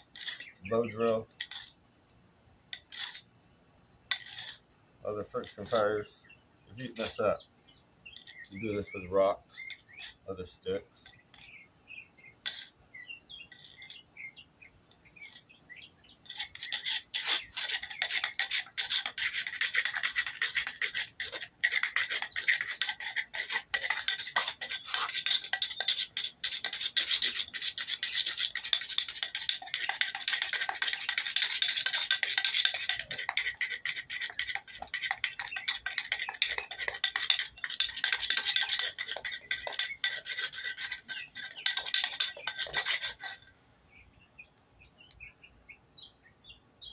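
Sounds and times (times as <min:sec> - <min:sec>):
wooden board scraping on concrete: 0:00.0 - 0:01.8, 0:02.7 - 0:03.3, 0:04.1 - 0:04.6, 0:06.8 - 0:07.2, 0:08.1 - 0:11.6, 0:12.4 - 0:12.8, 0:13.4 - 0:14.1, 0:16.2 - 0:43.5.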